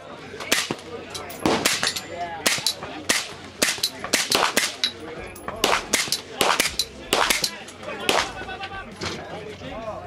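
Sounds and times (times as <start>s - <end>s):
suppressed rifle shots: 5.6s - 8.3s.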